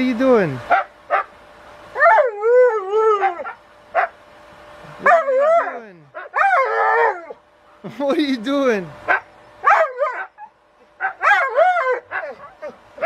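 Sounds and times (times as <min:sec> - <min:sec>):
dog howling: 0:02.0 - 0:04.1, 0:05.0 - 0:07.4, 0:09.6 - 0:12.8
dog yip: 0:09.1 - 0:12.8.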